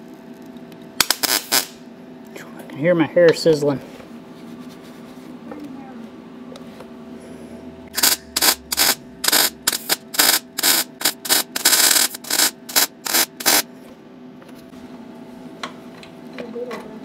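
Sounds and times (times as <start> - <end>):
welding arc crackle: 0.4 - 1.8, 7.9 - 13.7.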